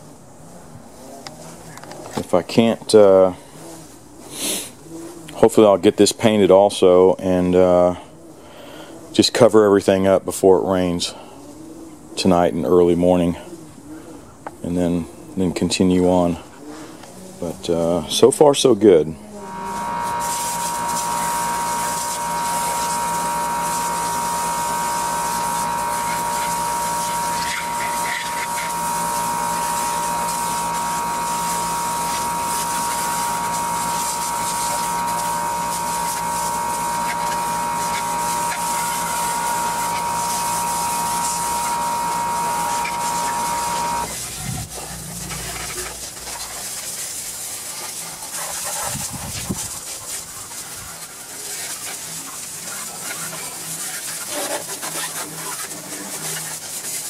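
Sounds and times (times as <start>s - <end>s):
hose spray hissing on metal: 3.0s - 4.8s, 19.4s - 57.0s
steady whine: 19.2s - 47.0s.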